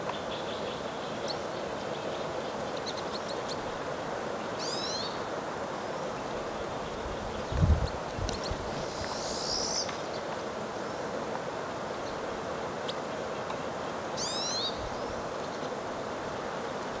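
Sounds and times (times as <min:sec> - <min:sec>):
crossbills calling: 0:04.6 - 0:05.2, 0:14.2 - 0:15.8.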